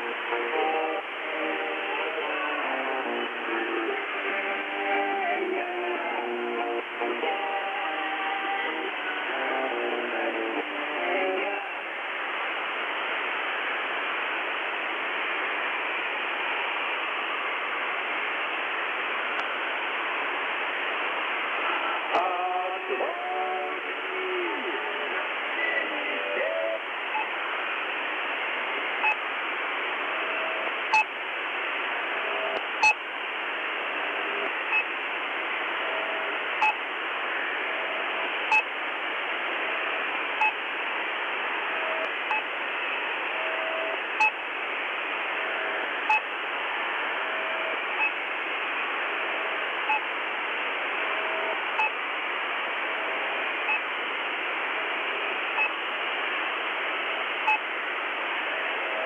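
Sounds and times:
static hiss: 0.0 - 59.0.

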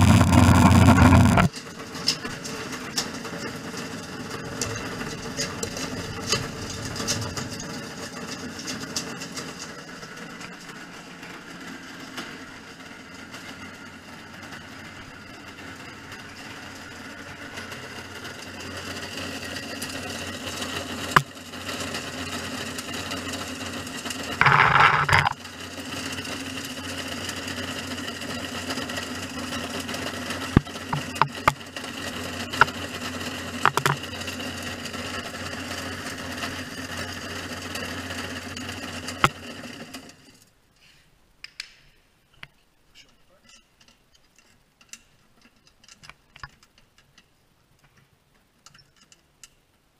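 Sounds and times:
loud crunching burst: 0.0 - 1.5
plastic granulator grinding: 0.0 - 1.5, 24.1 - 25.5, 29.9 - 35.0.

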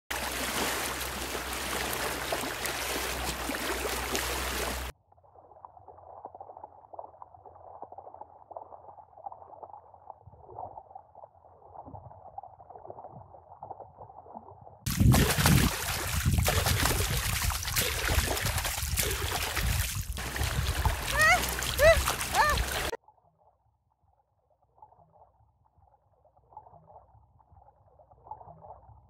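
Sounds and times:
underwater churning bubbling water: 0.1 - 4.9, 14.9 - 22.9.

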